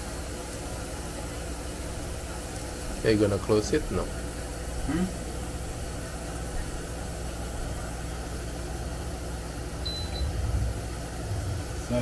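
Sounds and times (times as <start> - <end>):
grill fan humming: 0.0 - 12.0
short electronic beep: 9.8 - 10.3.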